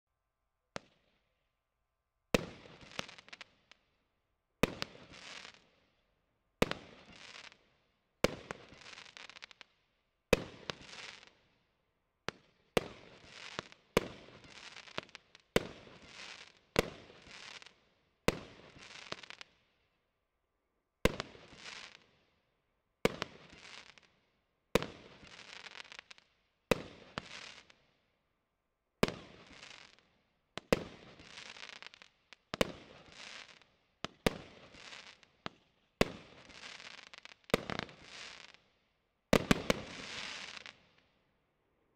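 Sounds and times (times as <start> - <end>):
firework stars crackling: 30.7 - 35.3, 36.0 - 38.6, 39.4 - 41.0.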